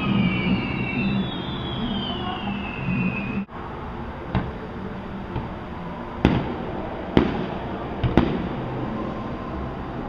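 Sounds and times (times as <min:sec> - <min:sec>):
fireworks bangs: 0:00.0 - 0:03.4, 0:06.2 - 0:08.9
trailing rumble: 0:00.0 - 0:10.0.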